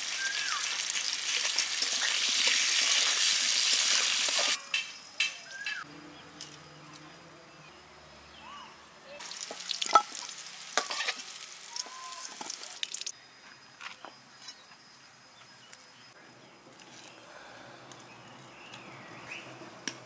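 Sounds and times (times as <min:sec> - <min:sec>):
potatoes sizzling in hot oil: 0:00.0 - 0:04.6, 0:09.2 - 0:13.1
metal ladle clinking and scraping: 0:09.8 - 0:11.2.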